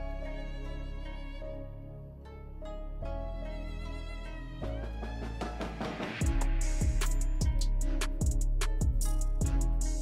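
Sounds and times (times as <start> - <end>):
background music with bass: 0.0 - 10.0
deep heavy bass: 6.2 - 10.0.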